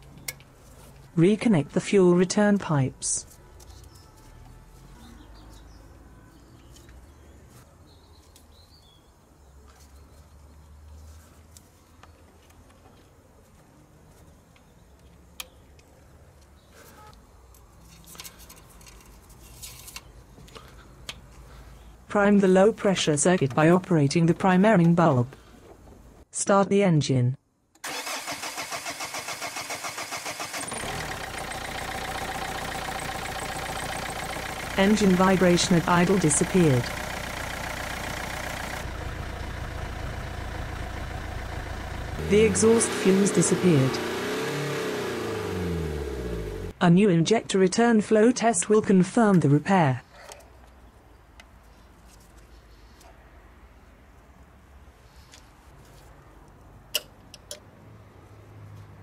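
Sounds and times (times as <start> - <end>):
starter cranking diesel engine: 27.8 - 46.7
diesel engine idling: 29.1 - 46.8
low steady rumble: 30.8 - 44.0.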